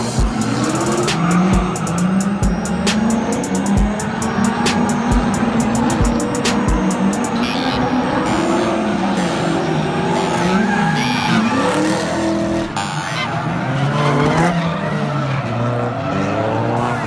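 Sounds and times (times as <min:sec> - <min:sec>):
car engines revving hard: 0:00.0 - 0:17.0
tyres skidding: 0:00.0 - 0:17.0.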